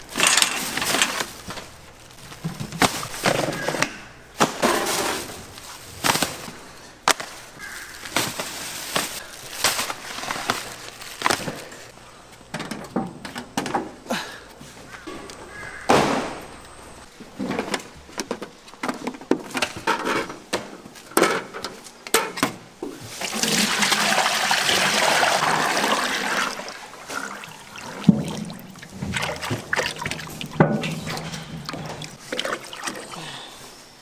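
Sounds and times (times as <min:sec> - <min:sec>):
kitchen clattering and knocks: 0:27.8 - 0:32.2.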